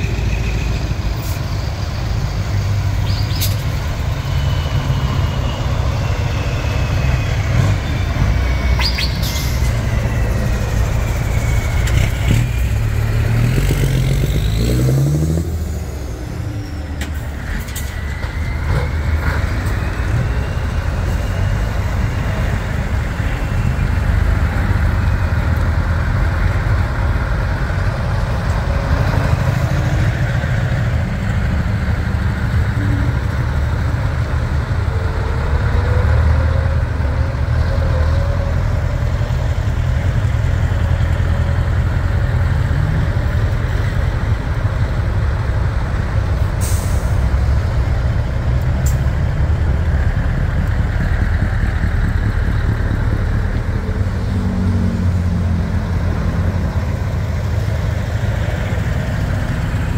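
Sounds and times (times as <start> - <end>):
diesel truck engines rumbling: 0.0 - 59.9
air brake hisses: 46.6 - 47.3.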